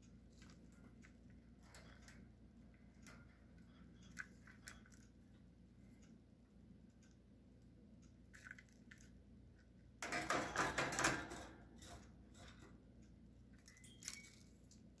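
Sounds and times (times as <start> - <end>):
clattering scrabble: 10.0 - 12.7.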